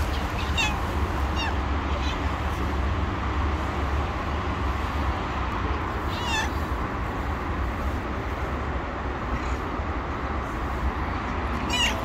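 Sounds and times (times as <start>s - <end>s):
cat meowing: 0.0s - 2.4s, 6.0s - 6.7s, 11.6s - 12.0s.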